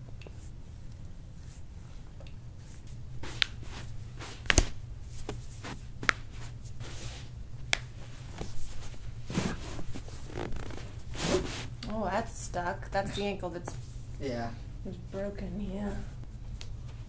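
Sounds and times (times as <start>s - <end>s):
low room hum: 0.0s - 17.0s
hands rubbing feet: 2.6s - 11.8s.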